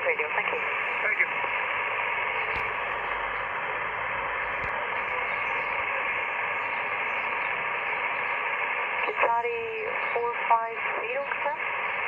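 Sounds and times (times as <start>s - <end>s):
radio static hiss: 0.0s - 12.0s.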